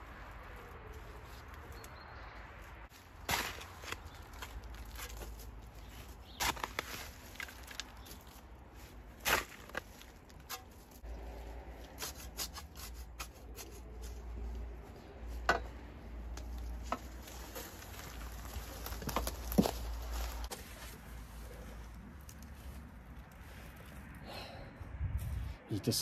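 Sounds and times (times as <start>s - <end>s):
spade scraping into soil: 11.8s - 14.2s.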